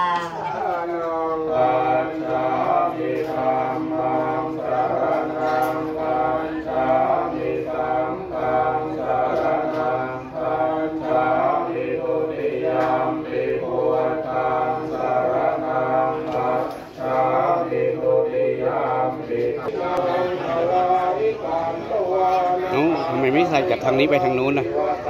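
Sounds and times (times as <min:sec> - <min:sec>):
men chanting together: 0:00.4 - 0:25.0.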